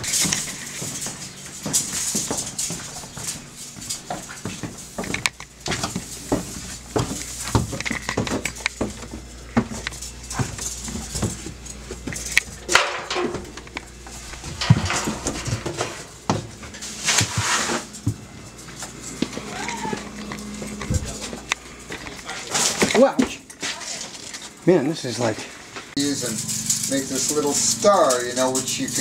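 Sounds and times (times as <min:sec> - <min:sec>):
footsteps and knocks: 0:00.0 - 0:24.6
rustling noise: 0:13.4 - 0:19.4.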